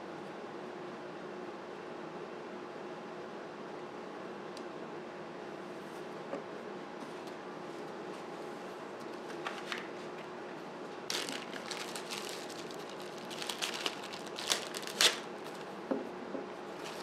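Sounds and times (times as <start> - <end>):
plastic bag crinkling: 11.1 - 15.7, 16.8 - 17.0
wood knocking on workbench: 15.9 - 16.5.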